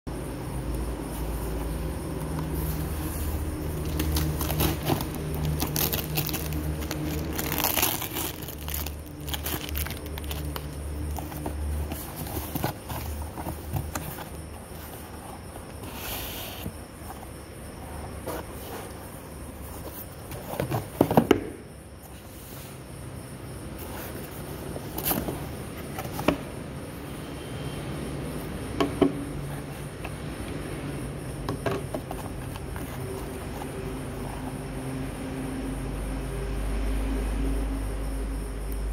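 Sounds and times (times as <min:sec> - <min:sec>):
cardboard flaps scraping: 0:02.4 - 0:15.2
packing tape tearing: 0:03.8 - 0:10.7
taps and knocks on cardboard box: 0:20.6 - 0:21.6.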